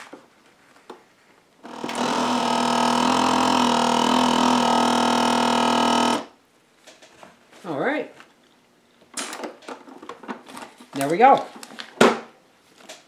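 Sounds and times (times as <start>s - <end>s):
vacuum sealer pump humming: 1.6s - 6.4s.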